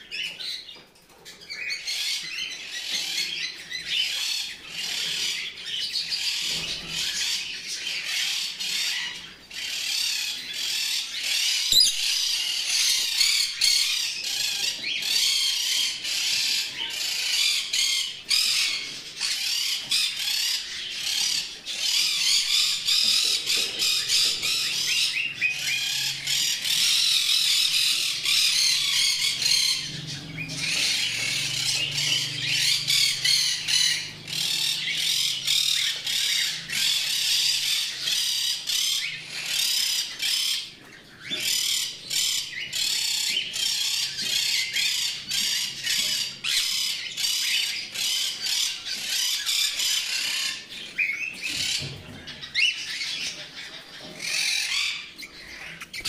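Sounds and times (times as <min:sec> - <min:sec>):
birds chattering and chirping: 0:00.0 - 0:56.0
parrot squawks: 0:11.2 - 0:13.8.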